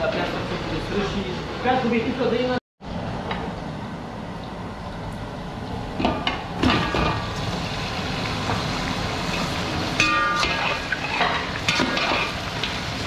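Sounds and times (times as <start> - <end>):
steady low rumble: 2.8 - 9.9.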